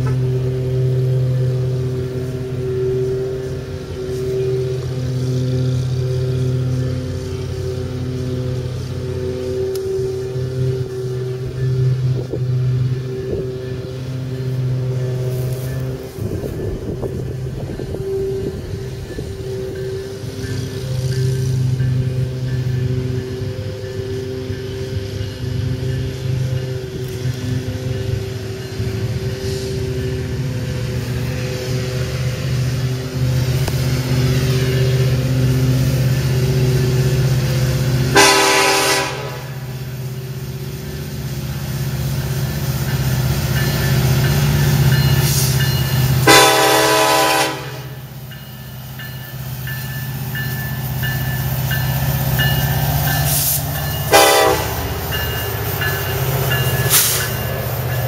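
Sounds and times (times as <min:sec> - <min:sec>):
train horn blasts: 0:00.0 - 0:25.8, 0:33.2 - 0:40.1, 0:45.2 - 0:48.2, 0:53.3 - 0:55.0
diesel locomotive engine drone: 0:00.0 - 0:58.0.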